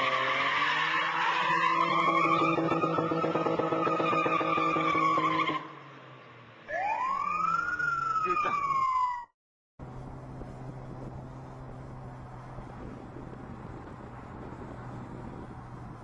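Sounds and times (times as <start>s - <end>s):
car tyres screeching: 0.0s - 5.8s.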